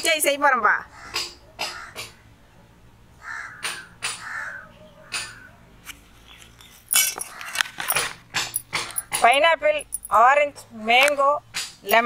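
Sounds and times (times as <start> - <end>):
crow cawing: 0.9 - 2.2, 3.2 - 5.6, 7.3 - 7.7
rustling and clicking: 5.8 - 10.2.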